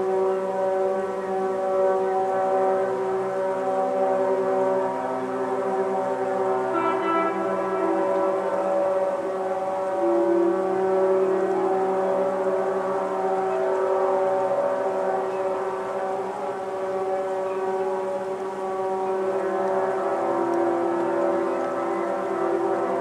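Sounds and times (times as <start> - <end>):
ship horns sounding: 6.6 - 9.2.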